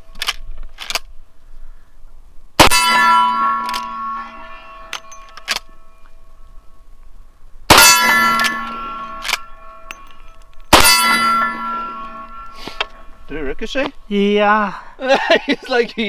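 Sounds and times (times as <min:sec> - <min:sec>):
steel plate target ringing: 0:02.6 - 0:06.4, 0:07.7 - 0:13.3
rifle shots: 0:07.7 - 0:09.5, 0:10.7 - 0:12.1.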